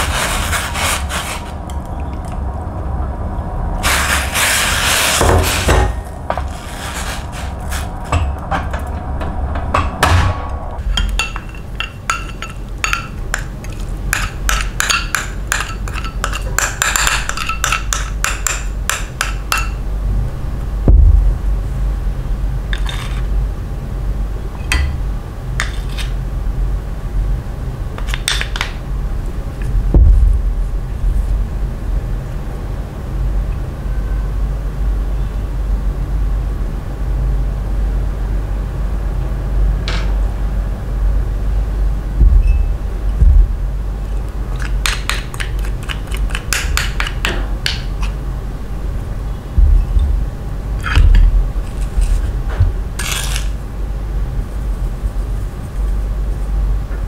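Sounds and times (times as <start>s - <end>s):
steady low hum: 0.0s - 57.0s
chopsticks stirring in steel pot: 10.8s - 19.8s, 44.0s - 47.3s
spoons clinking on ceramic dishes: 10.9s - 19.8s.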